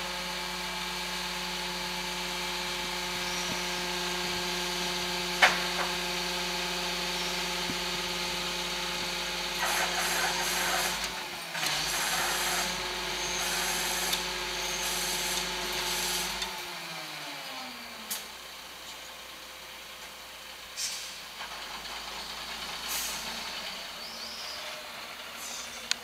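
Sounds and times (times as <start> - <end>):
garbage truck compactor whining: 0.0 - 18.9.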